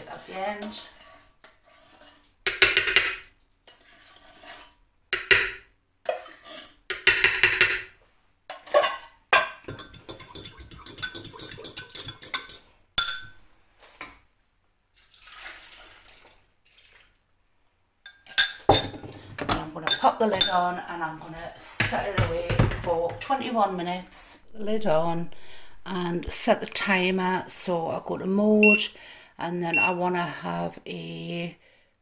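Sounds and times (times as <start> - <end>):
metal tin knocked and scraped: 8.5 - 13.3
fork clinking in glass jug: 8.7 - 13.3
liquid pouring: 14.9 - 17.2.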